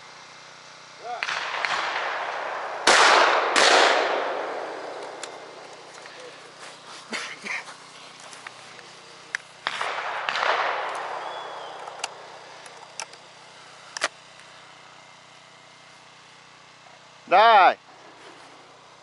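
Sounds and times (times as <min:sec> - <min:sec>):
distant shotgun shots: 0:01.1 - 0:05.9, 0:09.6 - 0:13.0.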